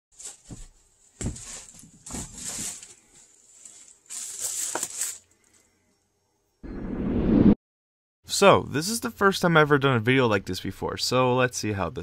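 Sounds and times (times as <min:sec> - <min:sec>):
rustling and soft bumps: 0:00.2 - 0:05.2.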